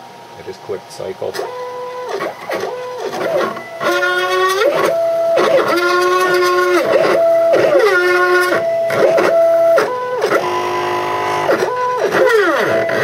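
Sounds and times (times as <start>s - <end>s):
stepper motors whining: 1.2s - 13.0s.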